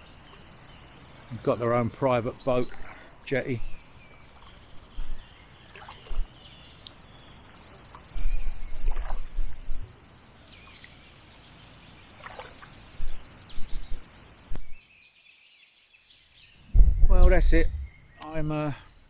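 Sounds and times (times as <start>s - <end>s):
kayak paddling on calm water: 0.0s - 14.6s
small birds chirping: 0.0s - 19.0s
wind buffeting microphone: 16.7s - 18.1s.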